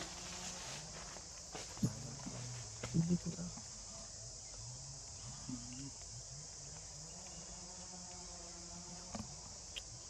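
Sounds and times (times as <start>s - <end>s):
insect chorus drone: 0.0s - 10.0s.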